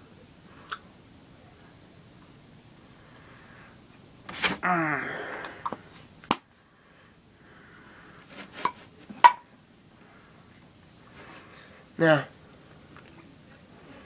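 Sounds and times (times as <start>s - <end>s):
falling vocal sound: 4.6s - 5.7s.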